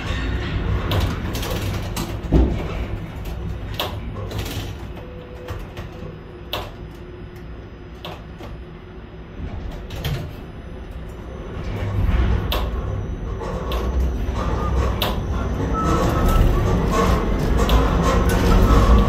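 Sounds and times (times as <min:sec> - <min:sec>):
crane machinery rumbling: 0:00.0 - 0:19.0.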